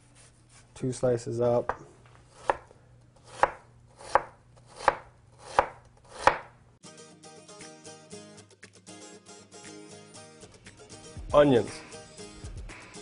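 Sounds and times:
knife chopping on cutting board: 0:01.7 - 0:06.5
background music: 0:06.8 - 0:13.0.

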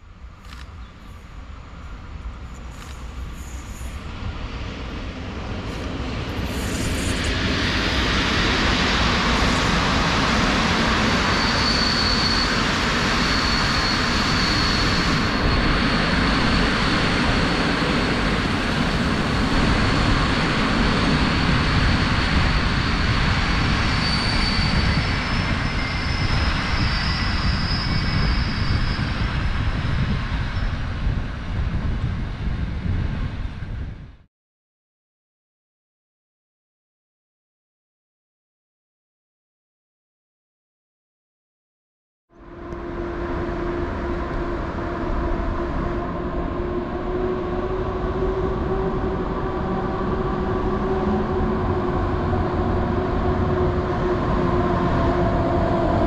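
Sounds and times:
faint high whine: 0:00.0 - 0:20.8
train passing rail noise: 0:00.0 - 0:34.1, 0:42.4 - 0:56.0.

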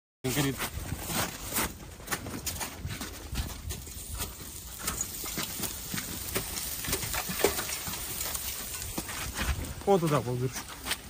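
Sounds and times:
irregular knocks and crackles: 0:00.3 - 0:11.0
snow crunching: 0:02.5 - 0:11.0.

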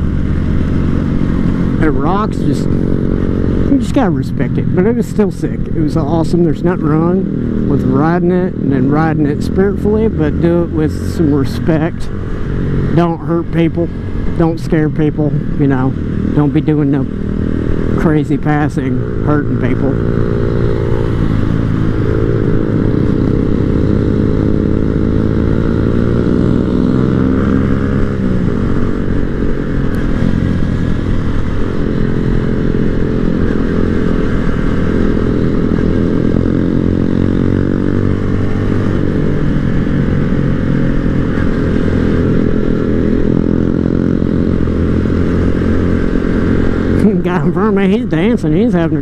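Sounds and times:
small motorcycle engine running: 0:00.0 - 0:49.0.

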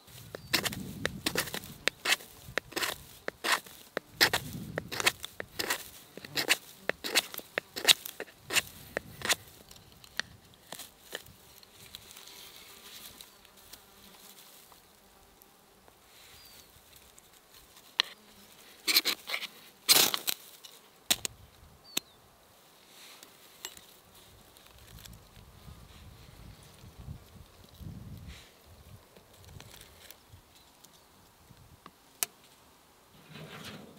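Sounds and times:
faint insect buzzing: 0:00.0 - 0:33.9
knife scraping ferro rod: 0:00.1 - 0:11.3, 0:18.9 - 0:20.2
knife shaving stick: 0:00.1 - 0:11.7, 0:18.8 - 0:20.2.

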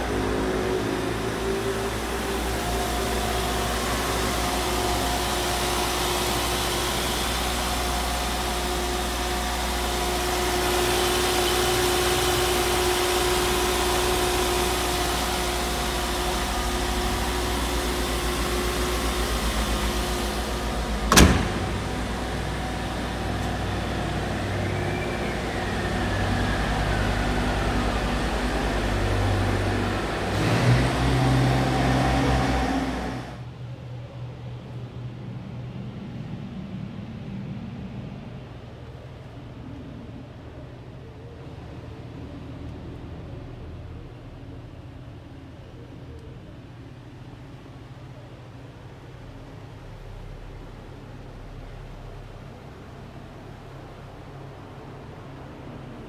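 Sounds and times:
car engine idling: 0:00.0 - 0:33.6.

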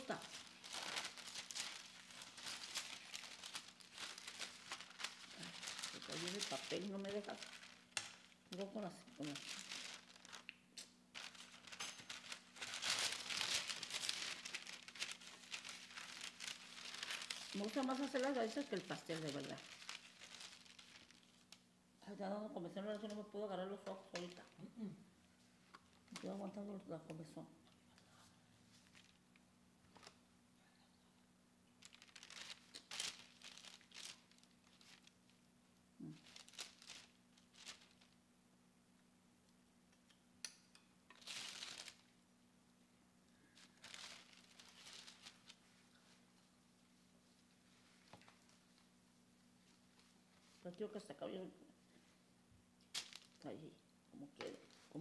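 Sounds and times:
paper crinkling and rustling: 0:00.0 - 0:21.6, 0:28.7 - 0:30.2, 0:31.8 - 0:35.4, 0:36.0 - 0:38.2, 0:41.1 - 0:42.1, 0:43.5 - 0:46.3, 0:52.9 - 0:53.5
faint steady hum: 0:00.0 - 0:55.0.

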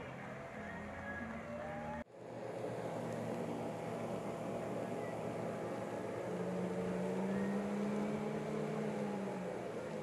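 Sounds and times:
boat engine running: 0:02.2 - 0:10.0.

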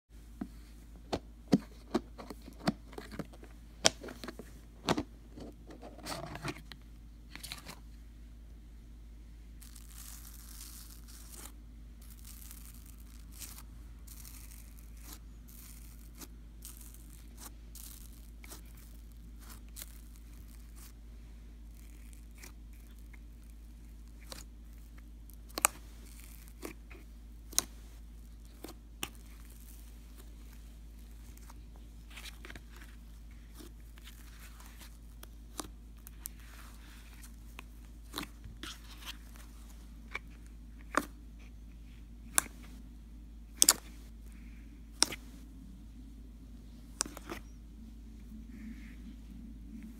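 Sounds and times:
low hum: 0:03.1 - 0:49.9
slime crackling and popping: 0:09.6 - 0:21.0, 0:21.6 - 0:30.3.

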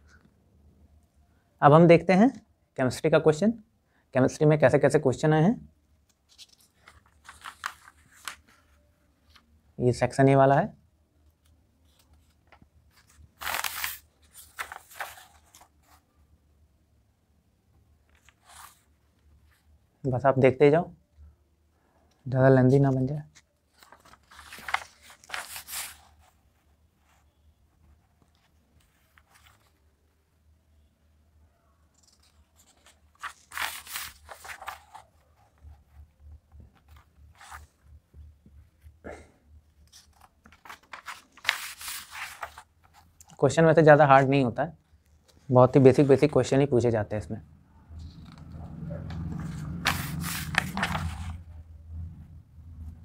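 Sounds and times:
paper pages rustling: 0:06.0 - 0:09.5, 0:11.4 - 0:16.1, 0:18.0 - 0:19.7, 0:22.6 - 0:27.2, 0:27.8 - 0:29.9, 0:31.9 - 0:38.8, 0:39.7 - 0:43.4, 0:48.0 - 0:51.6.

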